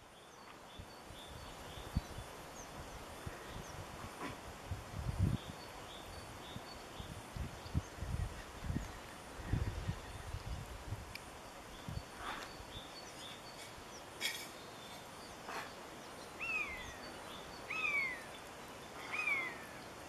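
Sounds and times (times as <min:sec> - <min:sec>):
faint outdoor background noise: 0:00.0 - 0:20.0
high falling animal calls: 0:16.4 - 0:19.9.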